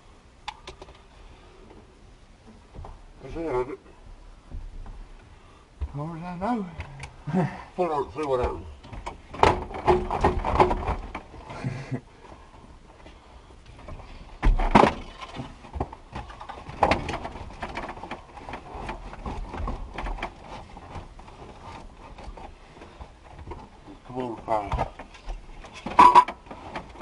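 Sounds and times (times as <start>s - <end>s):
tools knocking and rattling: 8.2s - 11.4s, 13.8s - 23.7s, 24.4s - 27.0s.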